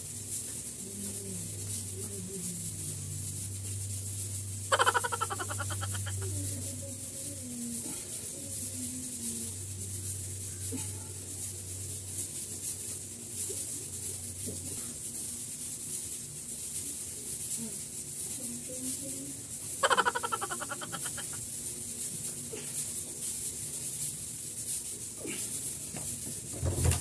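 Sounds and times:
loud rapidly pulsing fowl call: 0:04.6 - 0:06.3, 0:19.8 - 0:21.4
fowl calling: 0:04.6 - 0:06.4, 0:19.8 - 0:21.4.

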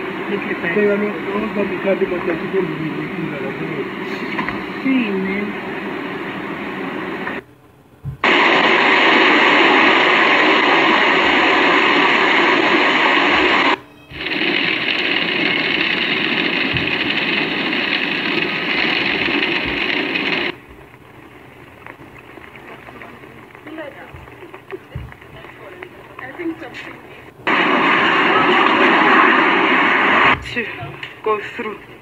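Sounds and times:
storm wind and rain roaring: 0:08.2 - 0:26.7.

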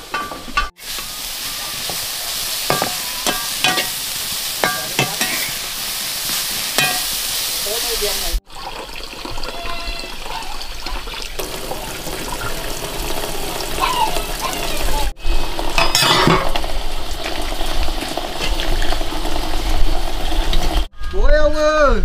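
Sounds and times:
utensils clinking on cookware: 0:00.0 - 0:05.7, 0:06.7 - 0:07.2, 0:15.8 - 0:16.6
food sizzling in a pan: 0:00.7 - 0:08.4, 0:11.4 - 0:20.9.

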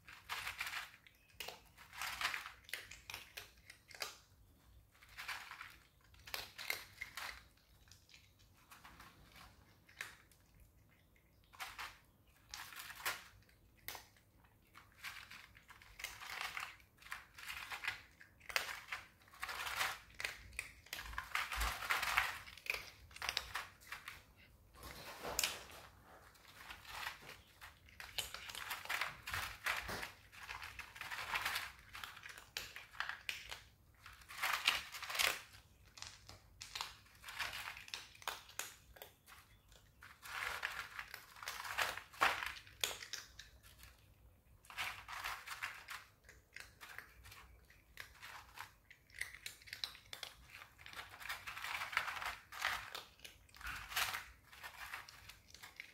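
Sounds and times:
cats chewing and crunching food: 0:00.0 - 0:55.9.

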